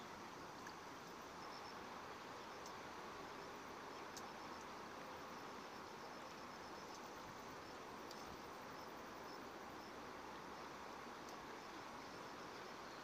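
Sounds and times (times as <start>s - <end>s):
outdoor hiss: 0.0s - 13.0s
soft ticks: 2.6s - 2.8s, 4.1s - 4.7s, 8.0s - 8.4s, 11.2s - 11.4s.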